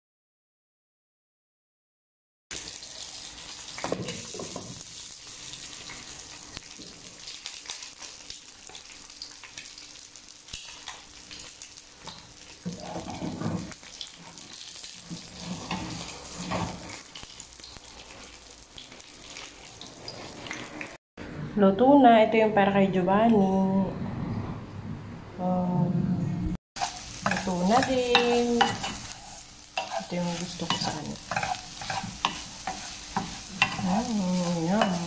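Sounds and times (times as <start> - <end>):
eggs sizzling in oil: 2.5 - 21.0, 26.8 - 35.0.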